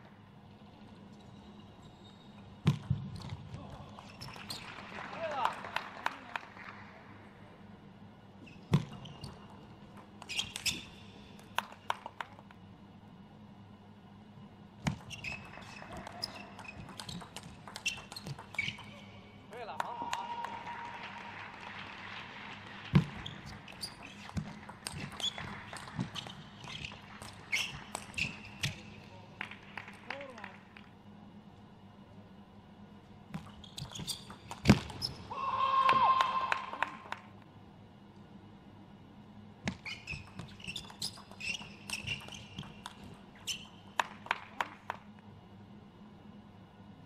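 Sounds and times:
shoes squeaking on floor: 0:10.3 - 0:11.0, 0:15.0 - 0:19.2, 0:23.1 - 0:25.4, 0:26.2 - 0:28.8, 0:33.5 - 0:35.3, 0:39.7 - 0:42.8, 0:43.4 - 0:43.8
ball bouncing on table: 0:14.8 - 0:18.9
ping pong ball clicking off paddles: 0:14.8 - 0:19.0, 0:23.8 - 0:28.8, 0:40.1 - 0:44.3.

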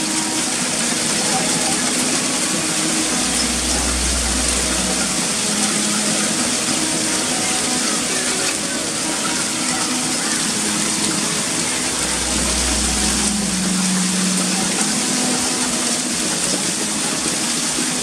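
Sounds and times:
low rumble: 0:02.7 - 0:06.6, 0:10.8 - 0:15.9.

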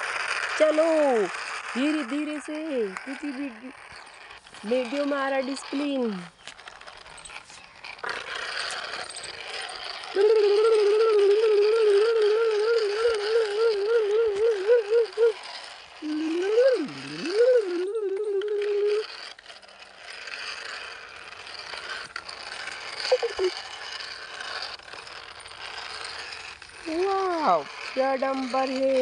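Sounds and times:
toy truck rattling over dirt: 0:00.0 - 0:29.0
child humming engine imitation: 0:10.1 - 0:19.2, 0:23.0 - 0:23.6, 0:26.8 - 0:29.0.

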